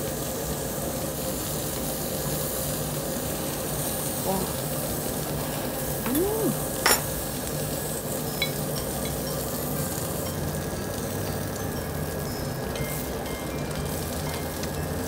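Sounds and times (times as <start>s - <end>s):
pork sizzling on grill: 0.0s - 15.0s
person humming: 6.0s - 6.7s.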